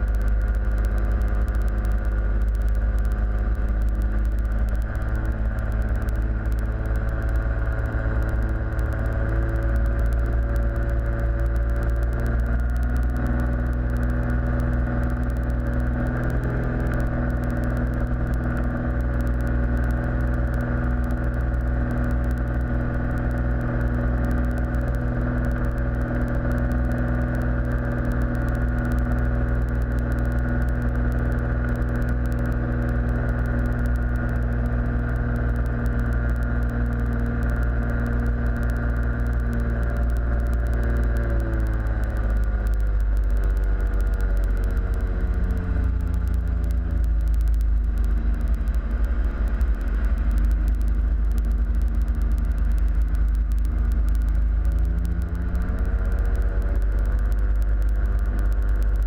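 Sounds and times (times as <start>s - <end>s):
propeller aircraft engine droning: 0.0s - 59.0s.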